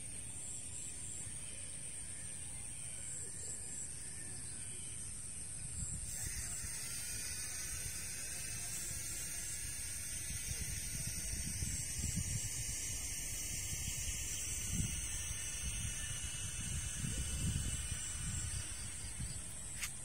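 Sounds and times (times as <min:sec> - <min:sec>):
steady high hiss: 0:00.0 - 0:20.0
wind buffeting microphone: 0:05.8 - 0:20.0.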